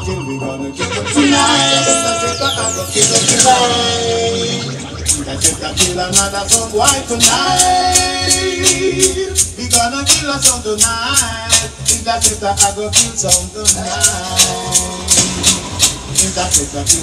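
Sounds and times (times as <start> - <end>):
reggae music over sound system: 0.0 - 17.0.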